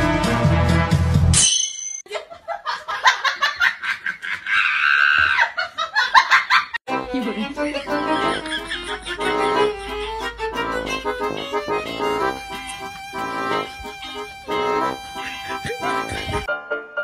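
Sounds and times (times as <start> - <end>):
music: 0.0 - 1.4, 6.9 - 17.0.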